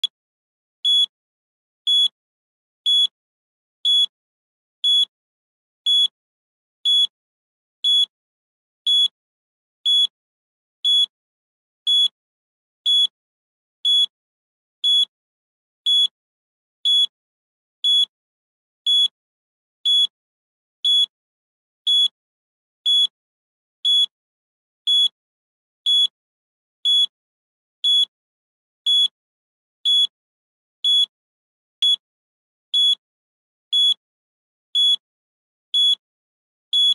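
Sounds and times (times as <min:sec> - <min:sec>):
timer beeps: 0:00.9 - 0:01.1, 0:01.9 - 0:02.2, 0:02.9 - 0:03.1, 0:03.9 - 0:04.1, 0:05.9 - 0:06.1, 0:20.9 - 0:21.1, 0:23.9 - 0:24.1, 0:24.9 - 0:25.2, 0:27.8 - 0:28.1, 0:30.8 - 0:31.1, 0:32.8 - 0:33.0, 0:33.8 - 0:34.0, 0:34.8 - 0:35.0, 0:35.8 - 0:36.0.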